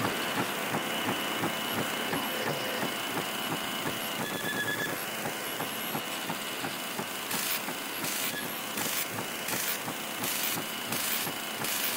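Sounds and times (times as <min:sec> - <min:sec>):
hiss bursts: 0:06.9 - 0:11.9.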